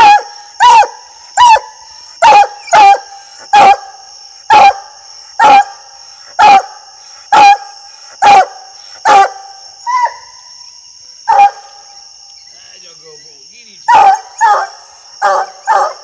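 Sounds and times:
dog barking: 0.0 - 3.9, 4.5 - 5.8, 6.4 - 10.2, 11.3 - 11.7, 13.9 - 16.0.

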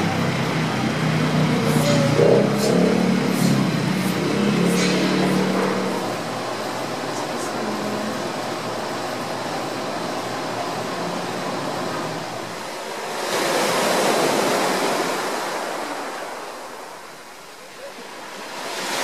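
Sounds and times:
ocean surf hissing: 0.4 - 19.0
wave breaking: 1.0 - 9.1, 12.5 - 17.2.

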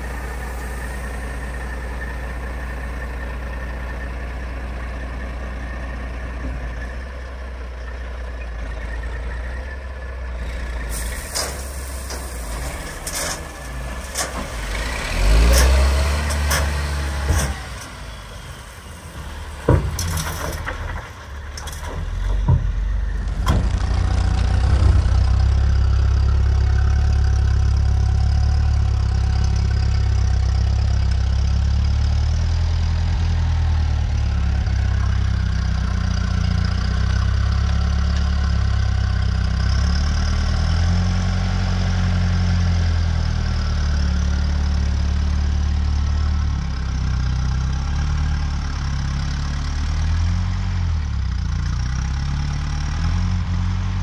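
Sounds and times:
diesel engine idling and revving: 0.0 - 54.0
tractor engine drone: 0.0 - 54.0
gravel dumping clanks and bangs: 10.9 - 26.0.

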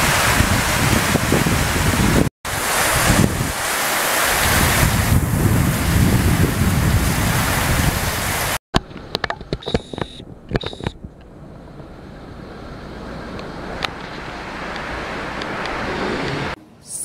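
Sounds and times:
heavy rain and wind: 0.0 - 16.6
clicks and knocks: 8.8 - 11.3.

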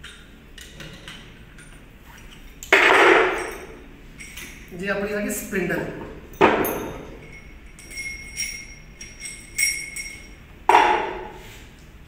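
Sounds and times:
metal parts clinking: 0.8 - 4.8, 6.3 - 10.4.

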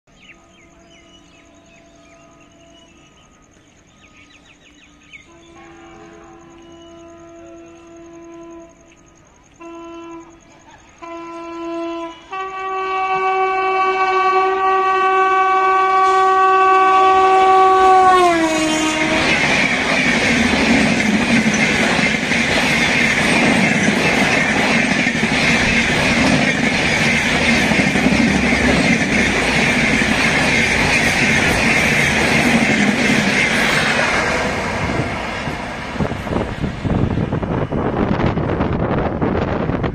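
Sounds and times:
locomotive horn blasts: 5.2 - 8.9, 9.5 - 19.4
train coaches clickety-clack: 17.1 - 39.9.

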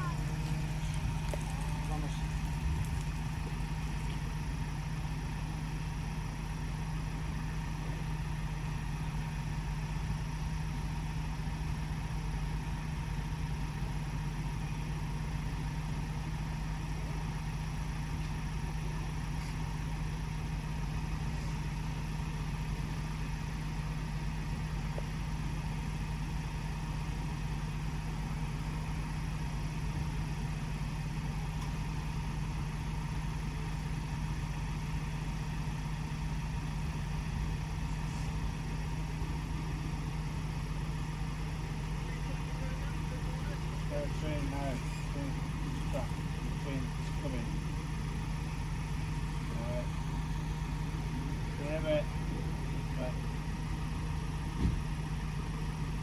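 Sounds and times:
faint high tone: 0.0 - 0.4
engine idling: 0.0 - 56.0.

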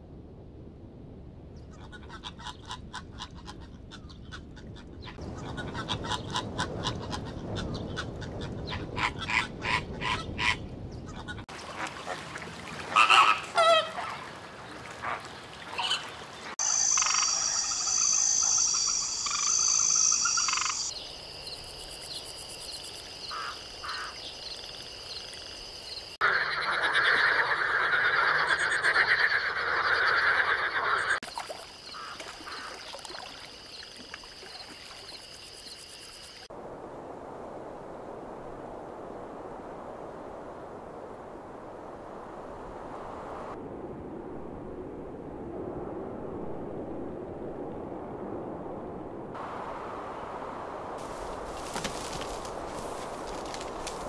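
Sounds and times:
waterfowl honking: 9.0 - 20.9, 23.3 - 24.2, 31.9 - 32.9
frogs croaking in chorus: 15.8 - 36.5.

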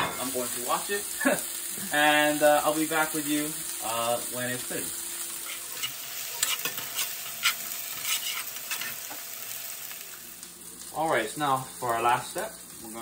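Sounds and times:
vegetables sizzling in pan: 0.0 - 13.0
metal spoon scraping pan: 5.4 - 9.2.

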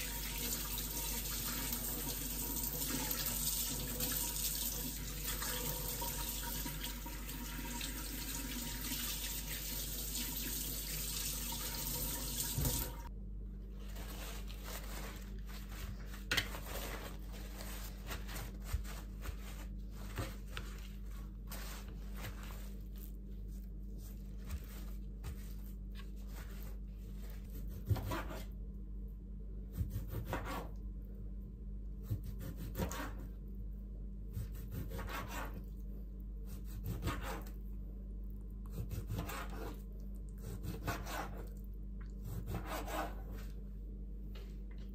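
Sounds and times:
tap water running into sink: 0.0 - 13.1
faint low hum: 12.6 - 44.9
paper towel patting: 13.8 - 27.5
knife slicing on cutting board: 32.1 - 33.2, 36.5 - 37.5, 38.7 - 39.8, 40.4 - 41.5, 42.2 - 43.5.

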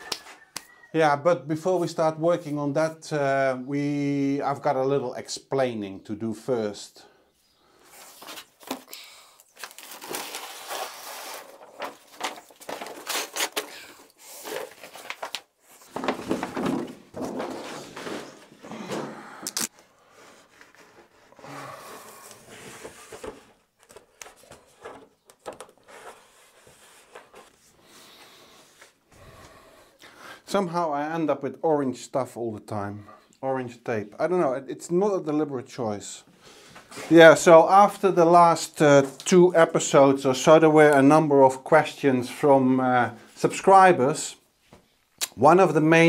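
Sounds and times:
paper rustling and crinkling: 7.9 - 18.6, 22.2 - 27.7
adhesive tape ripping off roll: 19.4 - 19.7.

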